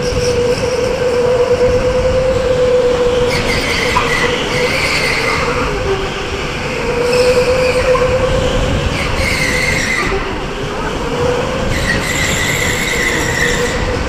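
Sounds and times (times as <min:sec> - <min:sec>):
tyres squealing: 0:00.0 - 0:14.0
wind rush on microphone: 0:00.0 - 0:14.0.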